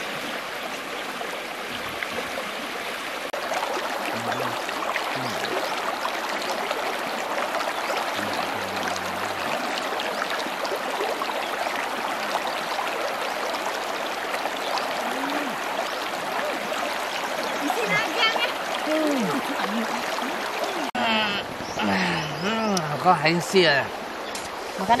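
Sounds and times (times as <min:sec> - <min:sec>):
river babbling over stones: 0:00.0 - 0:25.0.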